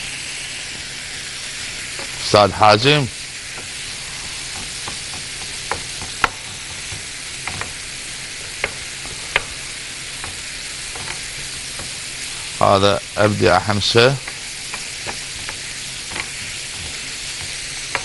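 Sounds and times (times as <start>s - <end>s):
meat sizzling in a pan: 0.0s - 18.0s
spoon scraping and knocking pan: 1.8s - 2.3s, 3.5s - 12.6s, 14.2s - 18.0s.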